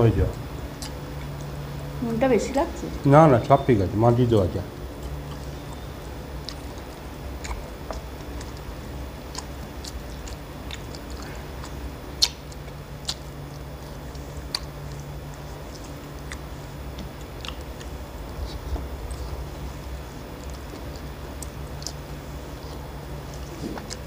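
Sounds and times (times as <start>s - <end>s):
people chewing: 0.0s - 24.0s.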